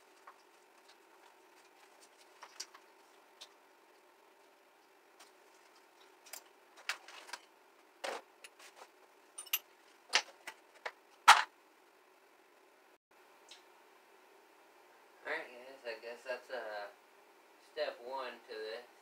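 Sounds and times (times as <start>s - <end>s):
metal tools clinking and knocking: 9.4s - 9.7s.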